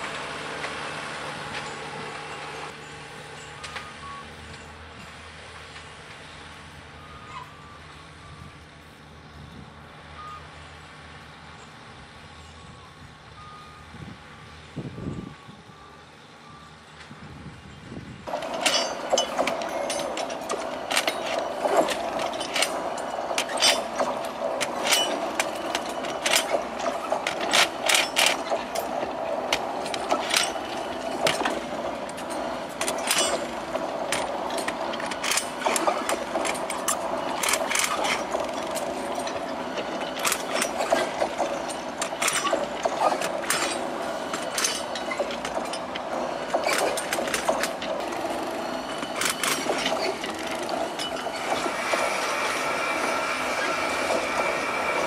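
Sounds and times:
engine droning: 0.0s - 55.0s
metallic clanks of tools on track: 1.4s - 6.2s, 18.3s - 55.0s.

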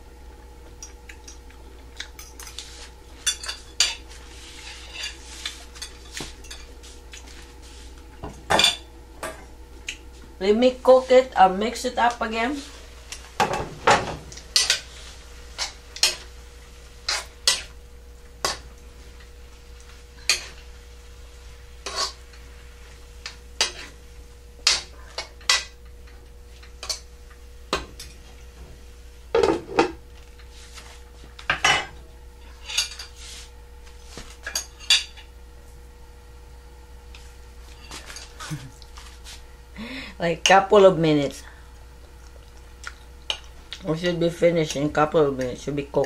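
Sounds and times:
utensil scraping against wok: 2.4s - 7.0s, 21.5s - 24.0s, 32.5s - 33.6s.

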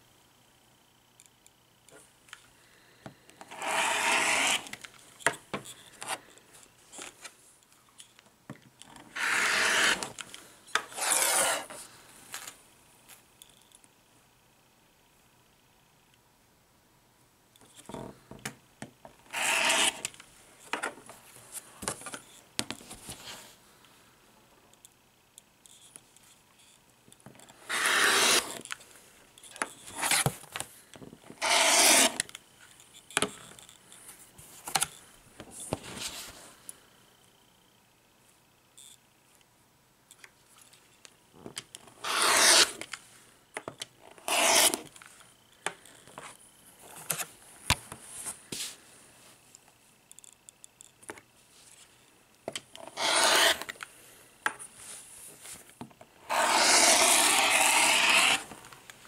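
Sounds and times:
rotary cutter scraping through fabric: 3.5s - 4.7s, 9.1s - 10.1s, 10.9s - 11.8s, 19.3s - 20.1s, 27.7s - 28.6s, 31.4s - 32.2s, 42.0s - 42.8s, 44.2s - 44.9s, 52.8s - 53.7s, 56.3s - 58.5s
ruler handling: 10.8s - 11.8s, 42.1s - 42.8s, 44.3s - 44.9s, 52.9s - 53.8s, 56.3s - 58.5s.

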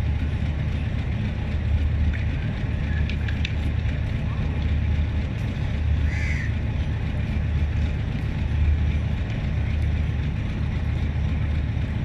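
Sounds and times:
locomotive engines humming: 0.0s - 12.0s.

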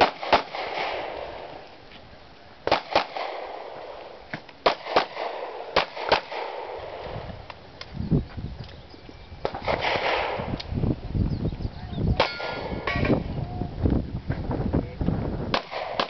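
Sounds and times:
pistol shots: 0.0s - 1.5s, 2.6s - 7.0s, 9.4s - 10.5s, 15.5s - 16.0s.

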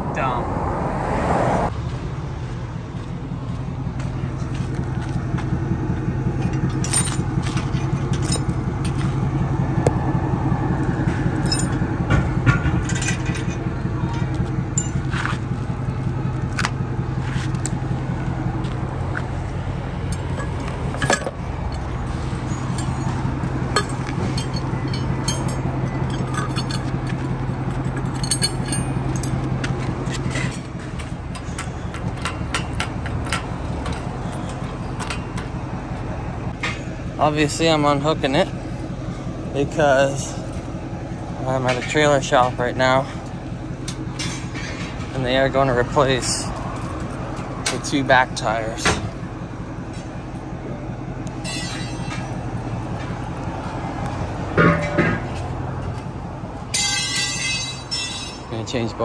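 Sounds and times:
truck engine idling: 0.0s - 59.0s
metallic clinks and clanks: 6.3s - 9.4s, 10.7s - 15.9s, 20.0s - 37.6s, 41.4s - 49.2s, 51.3s - 58.9s.

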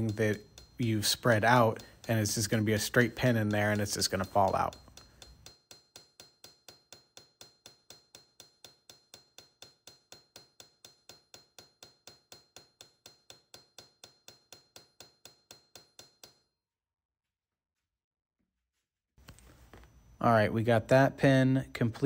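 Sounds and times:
hammer tapping metal on anvil: 0.0s - 16.5s.

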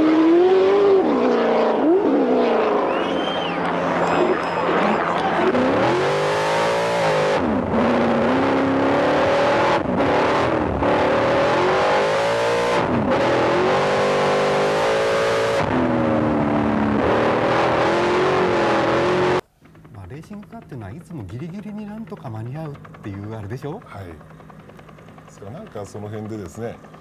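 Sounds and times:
race car engine revving: 0.0s - 19.4s.

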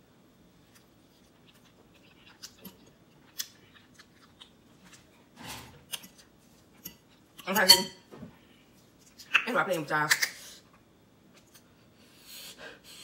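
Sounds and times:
chewing noodles: 0.7s - 5.1s.

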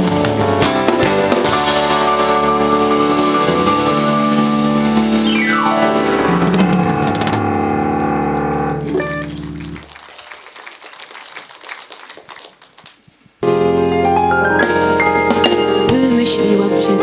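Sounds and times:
live band with keyboards: 0.0s - 17.0s
light clapping: 9.2s - 13.0s.

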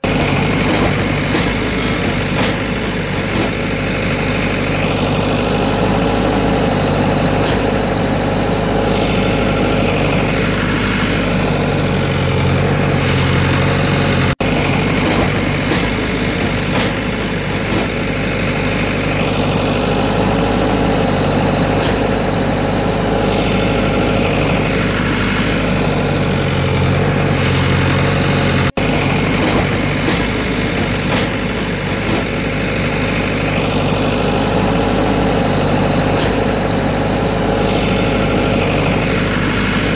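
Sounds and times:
heavy machinery engine running: 0.0s - 39.9s
machinery whine: 0.0s - 39.9s.

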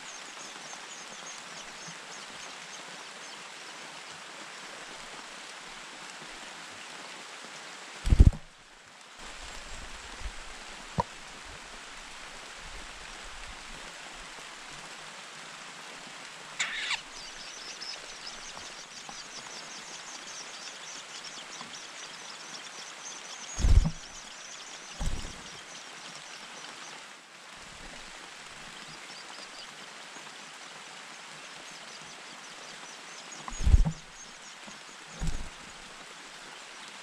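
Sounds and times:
background hiss: 0.0s - 37.0s
dull low thumps: 8.1s - 8.4s, 23.6s - 24.1s, 25.0s - 25.4s, 33.5s - 34.1s, 35.2s - 35.6s
nestlings cheeping: 16.6s - 18.0s.

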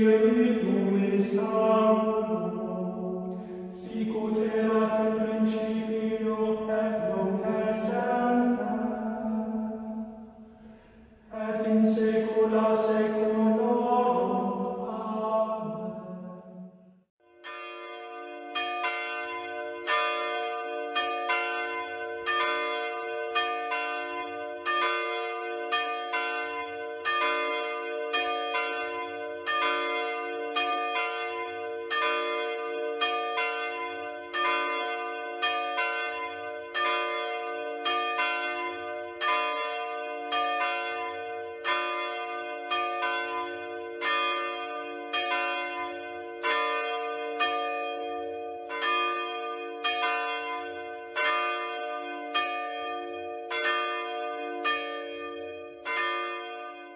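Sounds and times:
church bells ringing: 0.0s - 56.9s.

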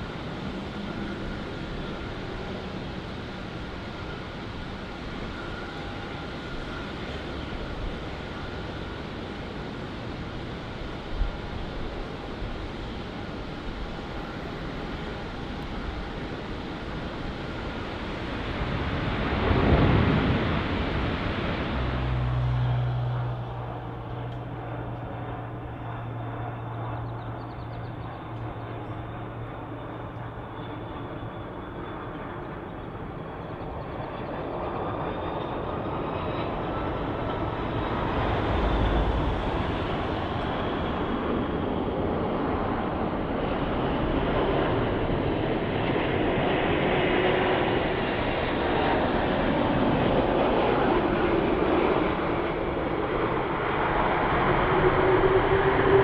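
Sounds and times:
jet engines rushing: 0.0s - 56.0s.

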